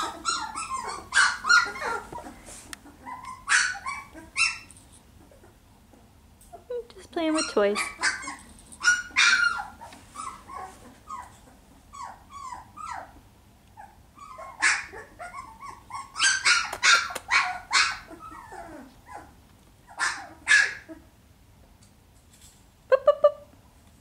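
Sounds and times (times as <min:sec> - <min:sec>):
puppy yipping and barking: 0:00.0 - 0:05.6, 0:07.3 - 0:13.2, 0:13.8 - 0:21.1.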